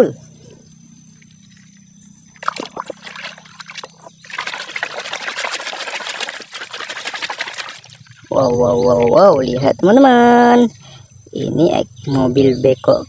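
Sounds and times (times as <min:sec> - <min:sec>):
toys splashing in water: 0:02.4 - 0:08.3.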